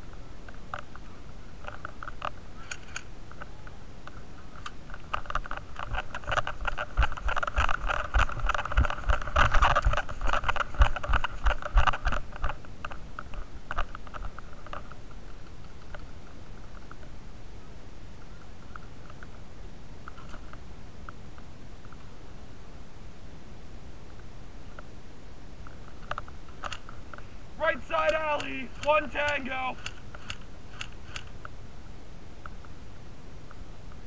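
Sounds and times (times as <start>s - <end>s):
clothing rustling against microphone: 4.1s - 17.0s.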